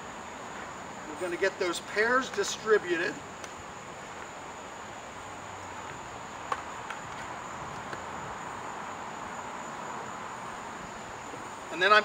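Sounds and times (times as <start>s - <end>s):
insects: 0.0s - 12.0s.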